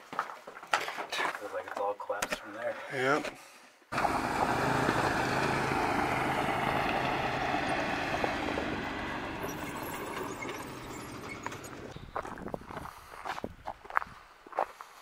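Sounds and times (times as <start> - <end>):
off-road vehicle engines humming: 3.9 - 13.0.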